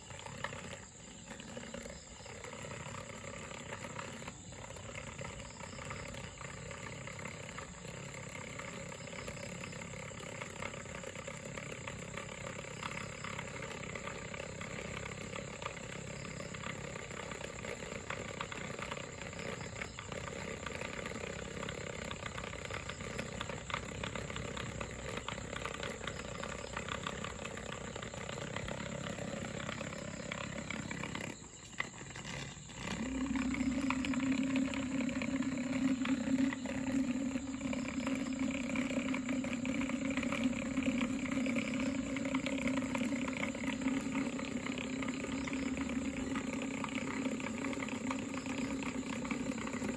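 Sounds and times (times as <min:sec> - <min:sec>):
small motor propeller whirring: 0:00.0 - 0:49.9
loud low steady hum: 0:32.2 - 0:49.9.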